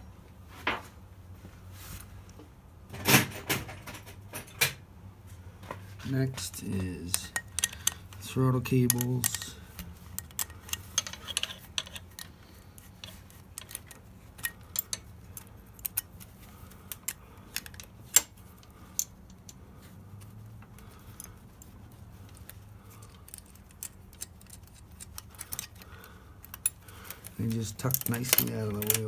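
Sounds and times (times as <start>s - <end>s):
light metallic clicks and clinks: 6.4s - 29.0s.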